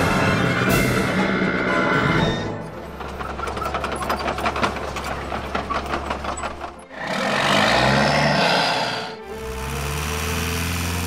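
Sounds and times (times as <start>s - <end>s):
rapid clicking of toy tracks: 2.8s - 8.5s, 9.4s - 11.0s
loud rough noise: 6.8s - 11.0s
toy electric motor humming: 8.5s - 11.0s.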